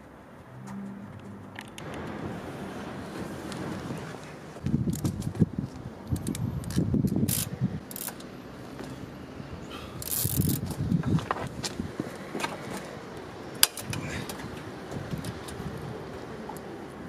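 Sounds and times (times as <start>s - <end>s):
socket ratchet clicking: 6.1s - 8.3s, 10.0s - 10.8s.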